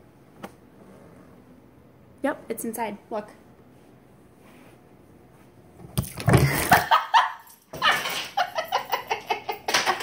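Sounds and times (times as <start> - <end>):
woman laughing hard: 6.5 - 10.0.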